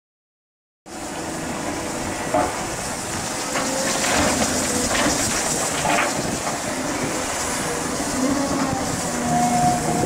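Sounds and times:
excavator engine running: 0:00.9 - 0:10.0
dirt and rocks rattling into truck: 0:03.4 - 0:07.2.

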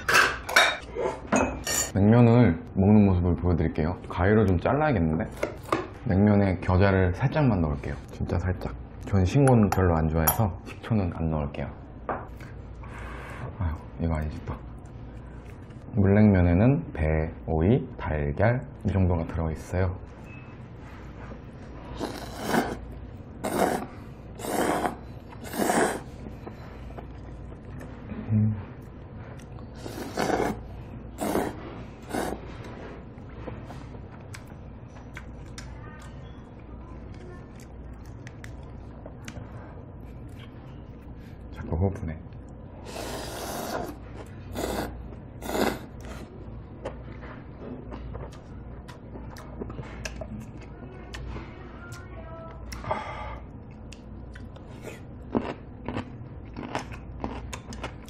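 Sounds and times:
person slurping noodles: 0:21.9 - 0:26.2, 0:29.7 - 0:32.5, 0:42.8 - 0:46.3
chewing with wet mouth clicks: 0:34.1 - 0:36.4, 0:37.0 - 0:39.5, 0:47.9 - 0:51.3, 0:53.5 - 0:58.0.

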